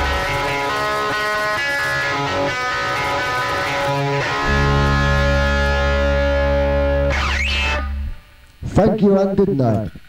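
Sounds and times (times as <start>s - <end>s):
rock band music: 0.0s - 8.4s
deep bass note: 4.4s - 8.3s.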